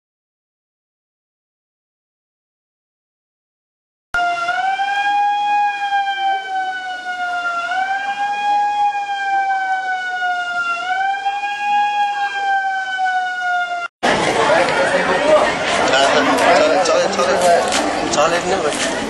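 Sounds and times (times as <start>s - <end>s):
rising and falling alarm siren: 4.2s - 13.9s.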